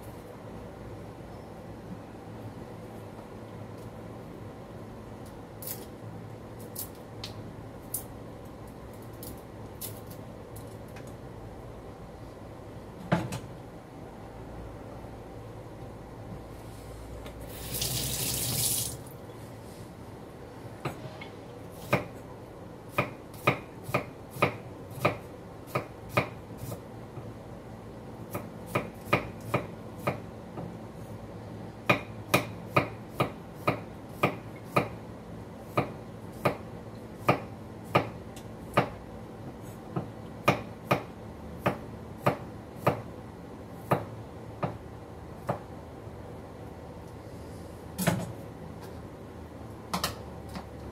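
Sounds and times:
tap water running: 17.5s - 19.1s.

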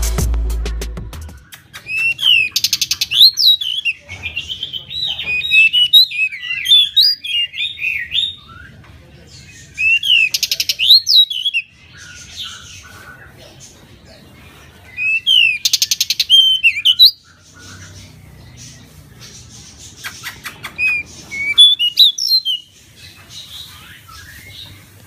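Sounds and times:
bird singing: 1.3s - 25.0s.

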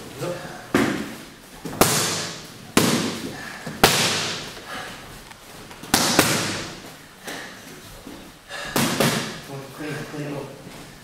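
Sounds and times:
boxing gloves slapping mitts: 0.7s - 4.7s, 5.6s - 9.5s.

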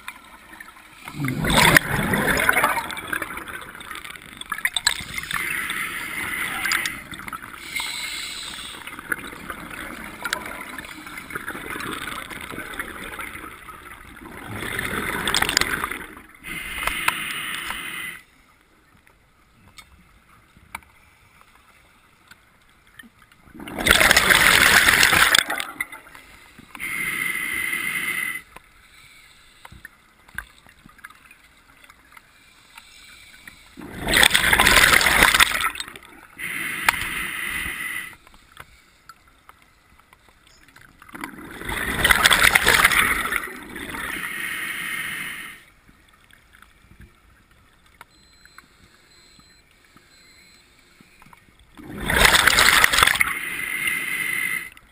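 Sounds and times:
gurgling exhaled bubbles: 1.0s - 7.6s, 8.9s - 16.2s, 23.5s - 26.1s, 33.8s - 36.1s, 41.1s - 44.3s, 51.8s - 54.7s
hissing regulator inhalations: 5.4s - 9.0s, 16.4s - 18.3s, 26.4s - 29.8s, 36.4s - 38.3s, 53.2s - 54.8s.

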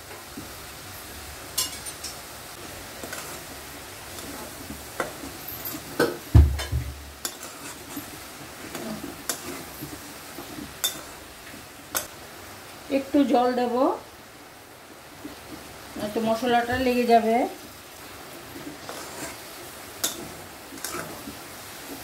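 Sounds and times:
metal spatula scraping a pan: 3.0s - 6.2s, 7.2s - 11.2s, 18.4s - 22.0s
spatula knocking on pan: 6.0s - 7.1s.

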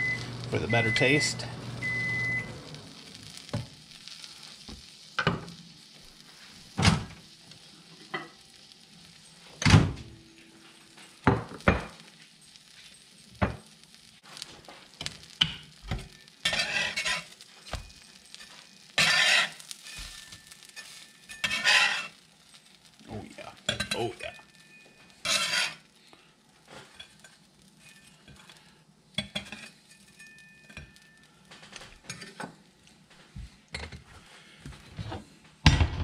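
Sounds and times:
sandwiches sizzling on griddle: 0.0s - 35.8s
metal spatula scraping: 14.3s - 22.7s, 23.6s - 25.9s, 26.7s - 31.3s.

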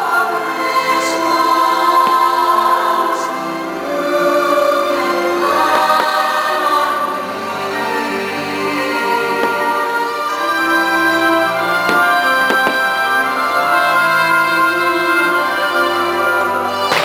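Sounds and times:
choir singing held notes: 0.0s - 17.0s
faint firework pops: 2.0s - 2.4s.

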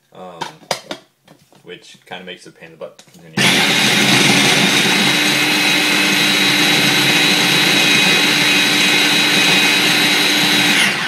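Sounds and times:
food processor motor whine: 3.4s - 11.0s.

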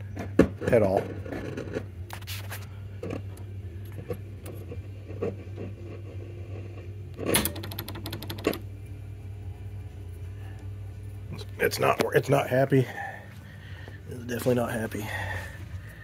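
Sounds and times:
radio speaker low hum: 0.0s - 7.6s, 8.3s - 16.0s.

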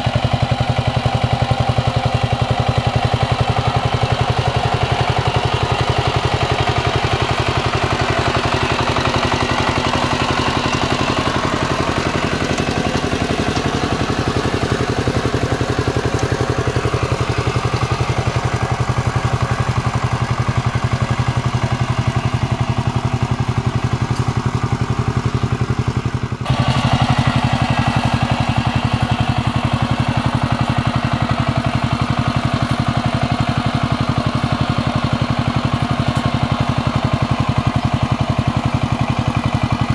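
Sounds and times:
power tiller diesel engine chugging: 0.0s - 39.9s.

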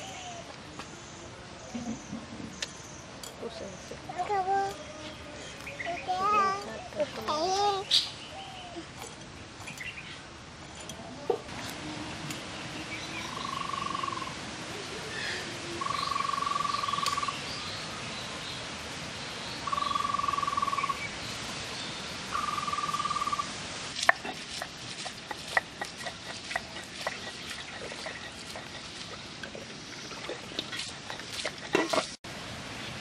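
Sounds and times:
outdoor background: 0.0s - 33.0s
animal trilled calls: 13.3s - 14.3s, 15.8s - 17.3s, 22.4s - 23.4s
stone roller grinding on stone: 24.2s - 29.2s.

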